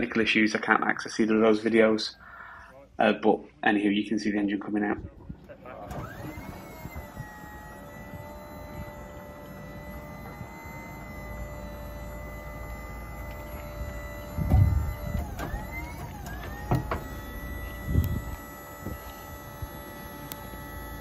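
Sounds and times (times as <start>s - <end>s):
crane mechanical hum: 5.3s - 21.0s
short gliding squeaks: 6.0s - 21.0s.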